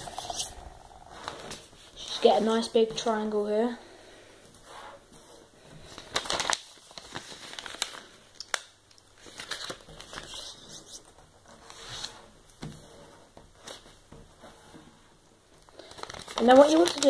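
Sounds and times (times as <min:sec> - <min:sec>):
paper rustling and crinkling: 0:05.2 - 0:12.4, 0:15.6 - 0:17.0.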